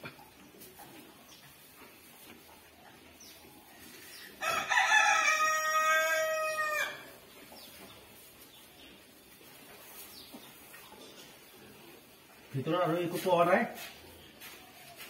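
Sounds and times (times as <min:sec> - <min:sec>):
rooster crowing: 0:04.4 - 0:07.1.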